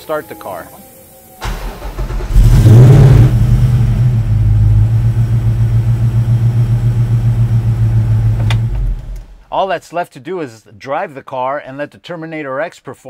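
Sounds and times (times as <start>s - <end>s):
car engine starting and idling: 0.0s - 9.4s.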